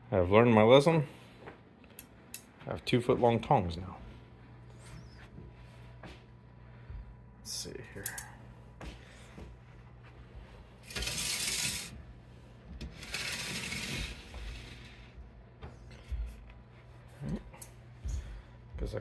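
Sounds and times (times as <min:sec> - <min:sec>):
sliding glass doors scraping: 0:10.8 - 0:12.0, 0:12.8 - 0:15.2.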